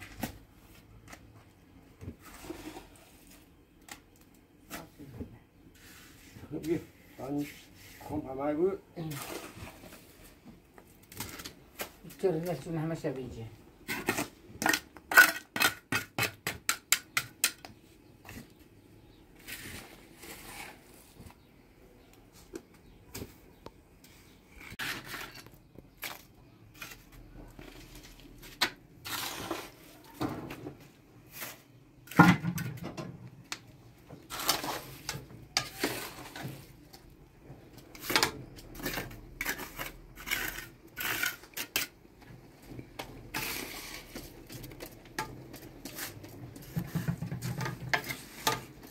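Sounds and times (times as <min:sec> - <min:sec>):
masonry scraping and knocking: 0:13.8 - 0:21.5, 0:22.5 - 0:48.9.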